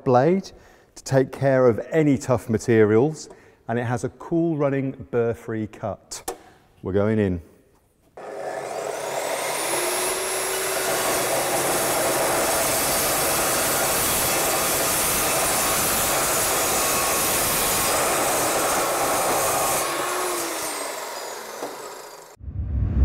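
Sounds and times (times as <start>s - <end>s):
chop saw cutting metal tube: 8.2s - 22.4s.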